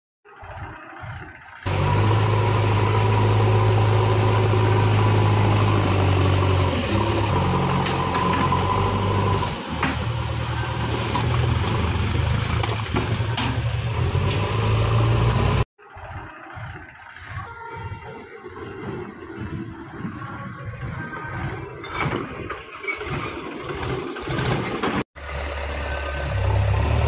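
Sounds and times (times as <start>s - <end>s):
diesel engine running: 0.4s - 18.1s, 22.6s - 27.0s.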